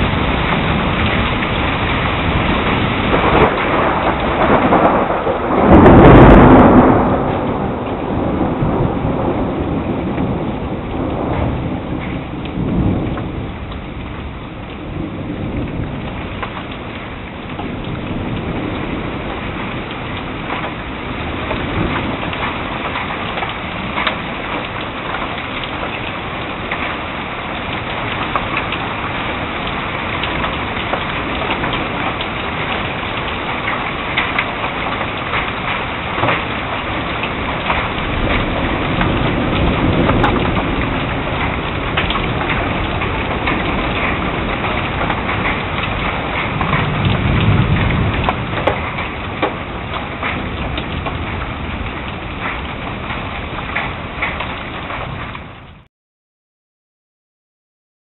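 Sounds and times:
raindrops ticking on surfaces: 0.0s - 55.9s
steady rain: 0.0s - 55.9s
thunder rumbling: 0.0s - 55.9s.

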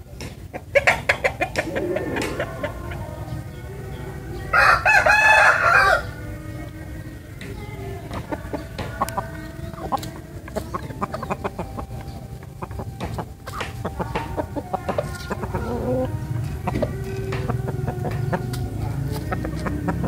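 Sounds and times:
chickens clucking: 0.0s - 20.0s.

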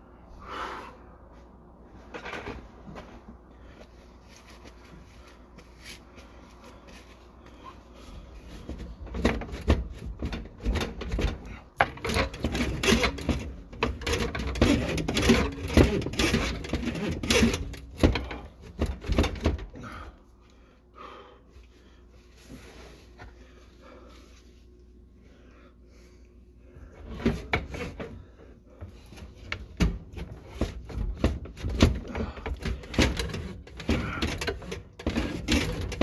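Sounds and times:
knocking and rattling clatter: 8.6s - 19.9s, 28.8s - 36.0s.

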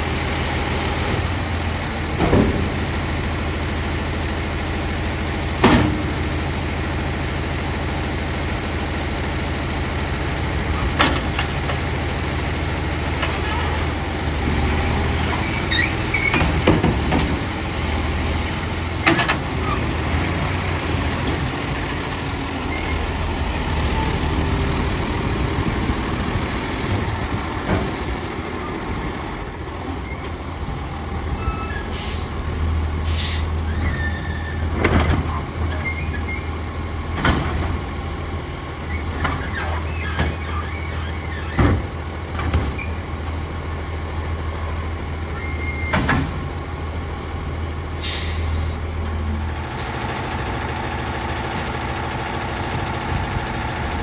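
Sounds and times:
garbage truck diesel engine: 0.0s - 54.0s
cart and loader arm clunks: 2.0s - 3.0s, 5.5s - 6.3s, 10.7s - 12.0s, 15.2s - 18.0s, 18.6s - 20.2s, 22.7s - 29.1s, 33.8s - 36.5s, 37.1s - 37.9s, 38.8s - 43.1s, 45.4s - 46.6s.

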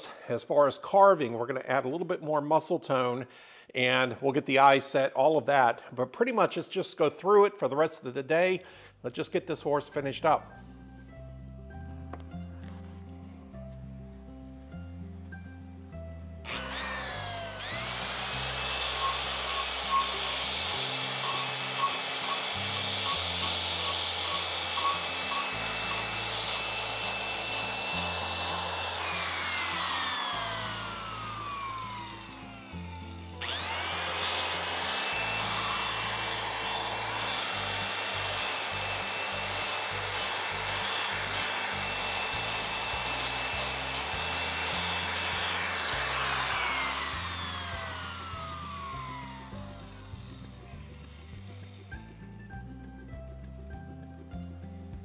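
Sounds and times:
angle grinder whining: 16.5s - 52.3s.

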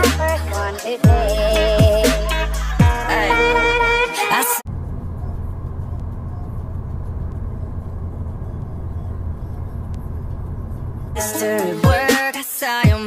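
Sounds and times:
car engine rumble: 4.7s - 12.1s.

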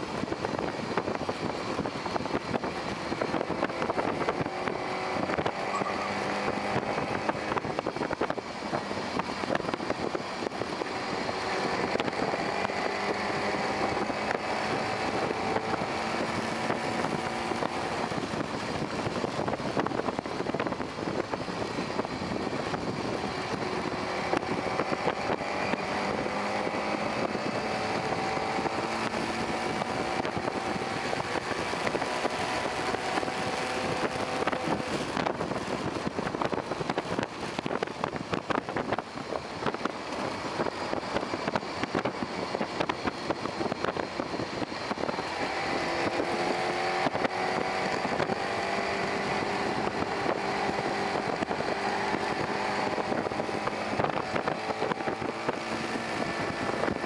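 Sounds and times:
wind and road noise: 0.0s - 57.0s
electric motor whining: 3.3s - 9.2s.

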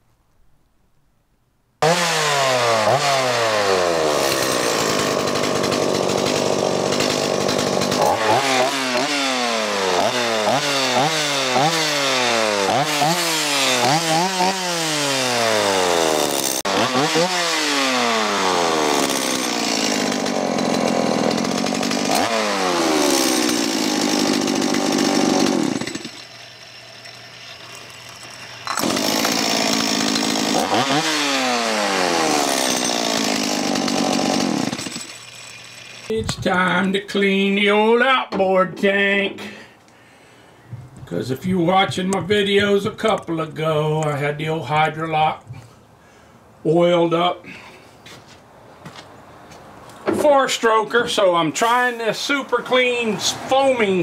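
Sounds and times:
chainsaw engine revving: 1.8s - 36.2s, 51.3s - 54.0s.

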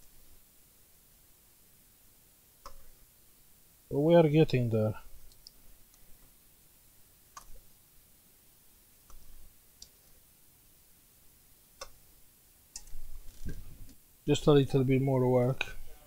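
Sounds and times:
faint small clicks and taps: 2.6s - 2.9s, 5.2s - 6.3s, 9.0s - 10.1s.

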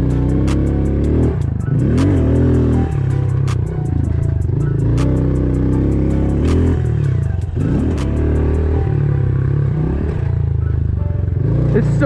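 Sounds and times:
motorbike engine revving: 0.0s - 12.0s.

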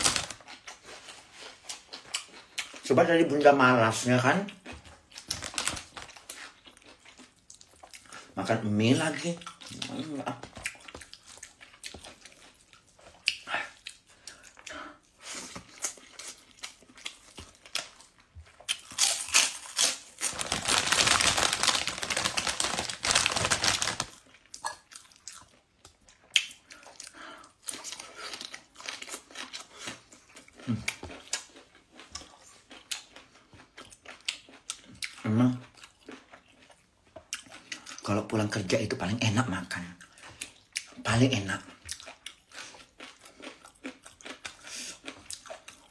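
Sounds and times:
loud crinkling: 0.0s - 0.5s, 5.2s - 6.2s, 19.0s - 24.2s
chewing and lip smacks: 0.3s - 2.9s, 4.4s - 8.4s, 9.2s - 19.2s, 24.1s - 38.1s, 39.9s - 45.9s.

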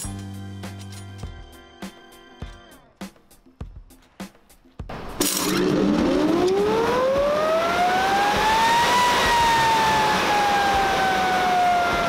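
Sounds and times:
hammer mill rotor whine: 4.9s - 12.0s.

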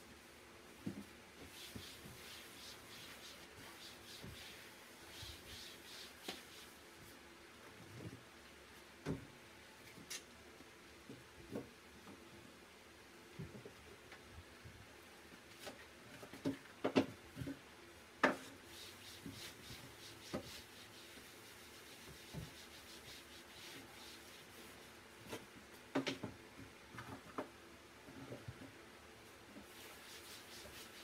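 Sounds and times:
cloth rubbing shelves: 1.4s - 7.0s, 18.5s - 25.5s, 29.6s - 31.0s.

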